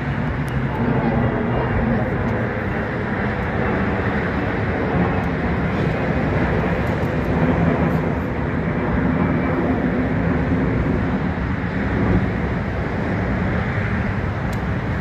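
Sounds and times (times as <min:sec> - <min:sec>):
jet engines rumbling: 0:00.0 - 0:15.0.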